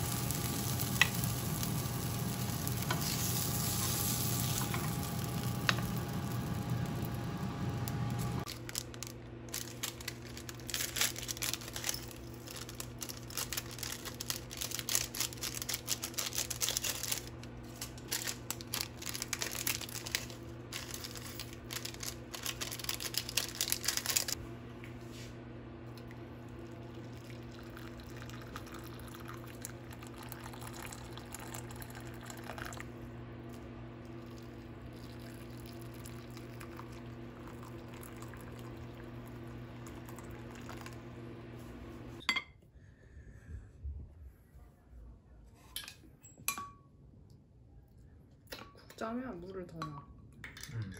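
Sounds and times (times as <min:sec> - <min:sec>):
hot water pouring into bowl: 0:00.0 - 0:07.2, 0:26.1 - 0:32.9, 0:34.0 - 0:41.2
fish sizzling in oil: 0:00.0 - 0:08.5
low kitchen hum: 0:00.0 - 0:50.9
crinkling and crackling: 0:07.8 - 0:24.4.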